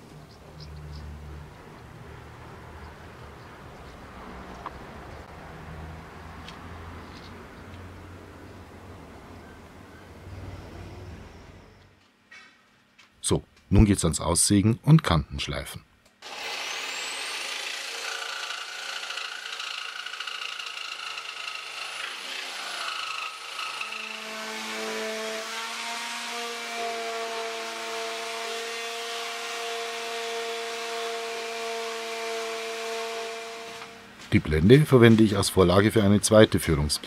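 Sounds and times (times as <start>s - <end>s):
electric jigsaw cutting plywood: 16.2s - 34.0s.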